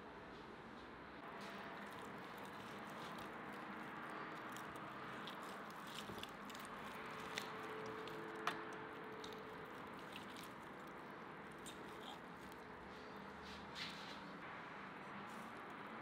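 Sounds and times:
knife carving through meat: 1.4 - 12.7.

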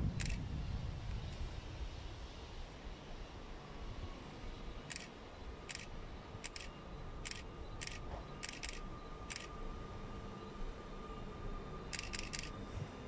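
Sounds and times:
train whine: 0.0 - 13.0
sharp hissing clicks: 0.2 - 0.4, 4.8 - 9.5, 11.9 - 12.6.

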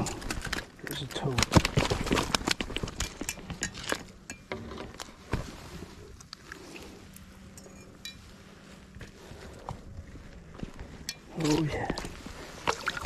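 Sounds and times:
fishing gear clicking and clinking: 0.0 - 4.6
faint steady hum: 0.0 - 13.0.

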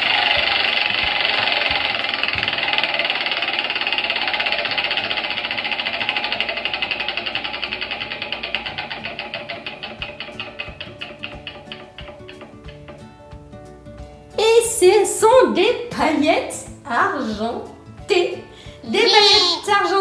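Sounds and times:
prize wheel ticking: 0.0 - 12.5.

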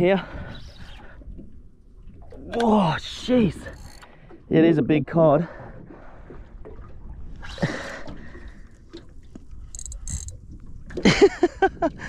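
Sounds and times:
faint water against boat hull: 0.0 - 12.0
short high clicks: 9.7 - 10.4.

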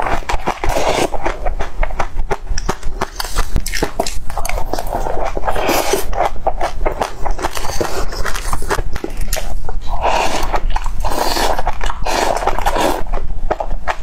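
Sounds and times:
mouth clicks and smacks chewing: 0.0 - 9.8.

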